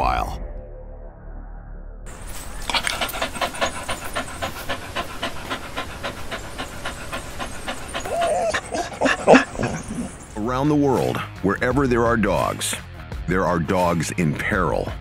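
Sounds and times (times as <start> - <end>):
dog panting rapidly: 2.1 - 10.4.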